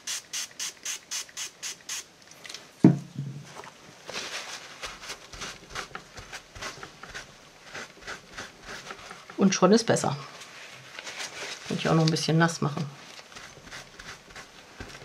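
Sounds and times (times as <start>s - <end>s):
spray bottle squirts: 0.0s - 2.1s
gloved hands rubbing damp fabric: 4.0s - 9.4s, 13.2s - 15.0s.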